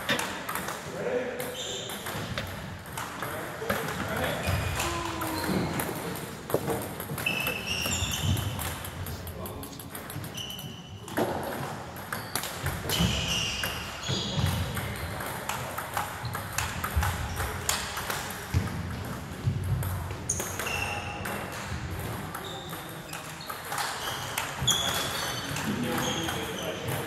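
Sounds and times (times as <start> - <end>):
table tennis balls clicking: 0.0 - 27.0
short high squeaks: 7.2 - 8.6, 10.3 - 11.0.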